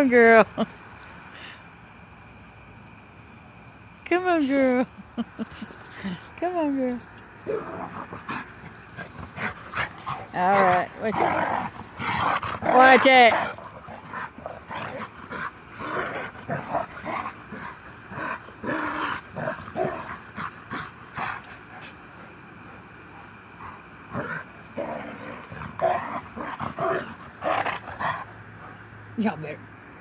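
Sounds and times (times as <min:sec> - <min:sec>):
dogs growling and yipping: 0:07.2 - 0:28.9.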